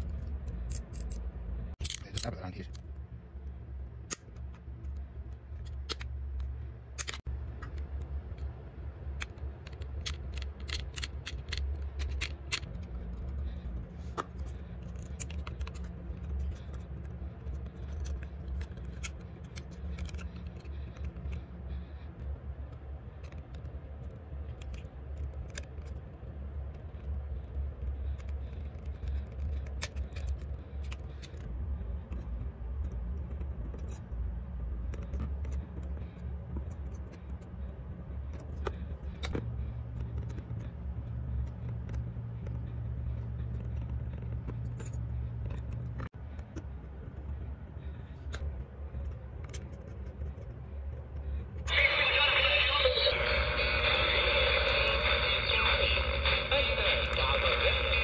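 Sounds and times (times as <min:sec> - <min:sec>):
small tools clicking and scraping: 0:00.0 - 0:02.8, 0:09.2 - 0:21.4
steady low hum: 0:00.0 - 0:58.0
higher hum: 0:51.7 - 0:58.0.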